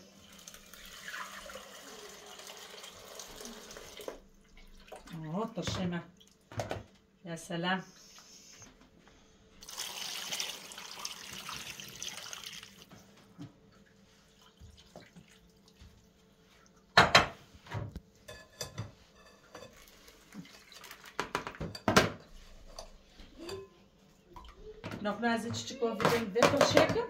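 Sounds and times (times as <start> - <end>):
water splashing into a pot: 0.2 - 5.2, 9.6 - 12.9, 19.5 - 21.8.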